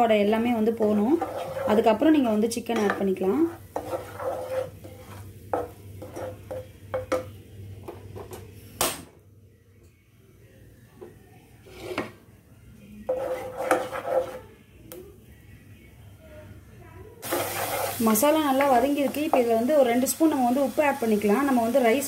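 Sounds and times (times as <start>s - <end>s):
wooden spatula scraping saucepan: 0.4s - 6.7s, 11.6s - 12.2s, 13.1s - 14.5s, 17.2s - 19.5s.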